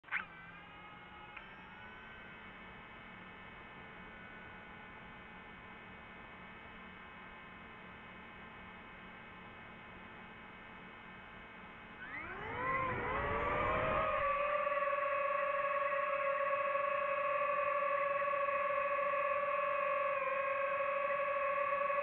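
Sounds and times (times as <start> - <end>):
faint steady hum: 0.9 - 22.0
drone propellers whining: 12.0 - 22.0.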